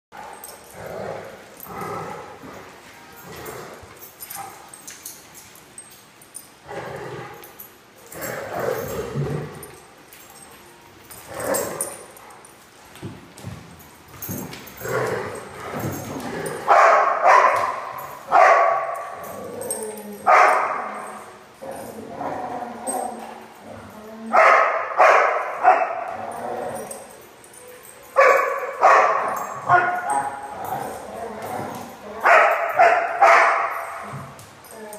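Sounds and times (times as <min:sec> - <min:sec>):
dogs barking and yipping: 0:00.2 - 0:05.2, 0:14.3 - 0:23.6, 0:24.3 - 0:34.9.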